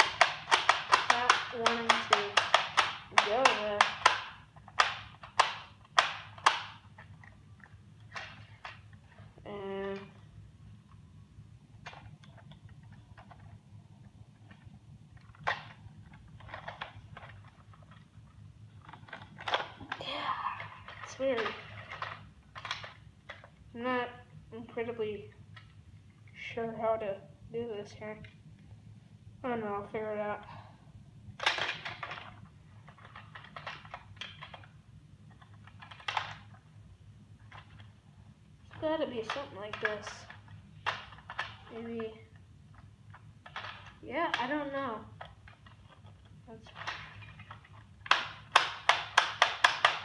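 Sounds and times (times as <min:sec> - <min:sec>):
plastic toy parts clicking: 0:00.0 - 0:09.2, 0:14.4 - 0:18.2, 0:18.8 - 0:20.0, 0:20.6 - 0:23.6, 0:31.4 - 0:36.7, 0:37.4 - 0:38.0, 0:38.6 - 0:50.0
low steady hum: 0:00.0 - 0:50.0.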